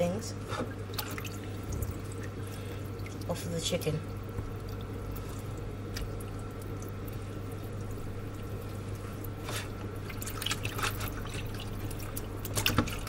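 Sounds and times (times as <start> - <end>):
steady low hum: 0.0 - 13.0
hands splashing in water: 9.3 - 13.0.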